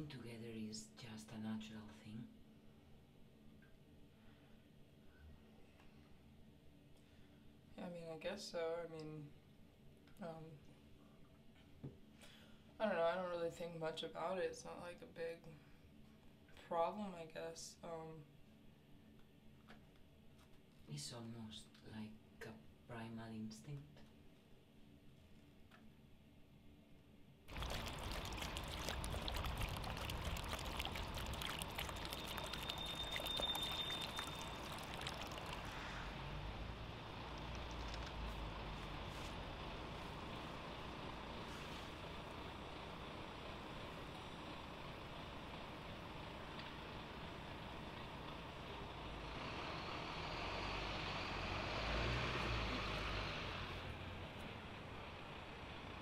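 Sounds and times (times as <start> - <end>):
water pouring into plastic bowl: 27.5 - 36.2
vehicle passing on street: 27.5 - 56.0.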